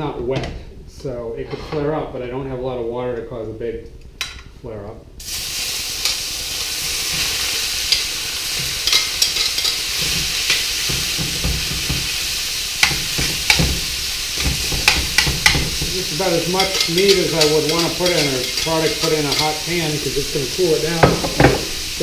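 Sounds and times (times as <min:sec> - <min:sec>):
meat sizzling in a pan: 0:05.2 - 0:22.0.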